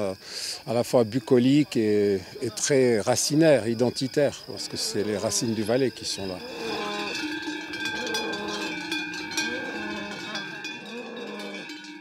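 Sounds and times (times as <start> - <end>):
cowbells clanging: 2.5 - 12.0.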